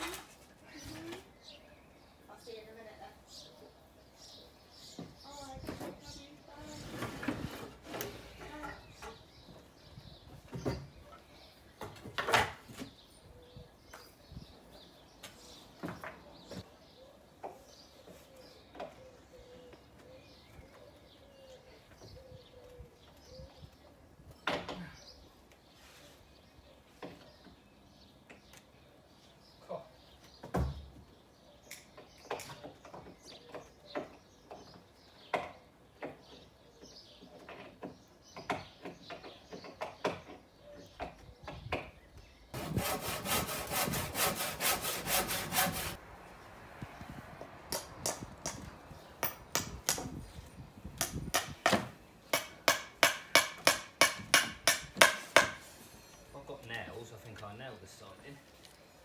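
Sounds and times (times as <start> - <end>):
hammering on wood: 51.0 - 55.6.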